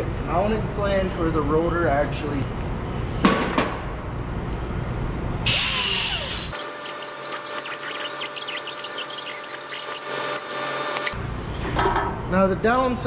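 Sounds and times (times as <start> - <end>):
die grinder scrubbing rust: 5.7 - 11.2.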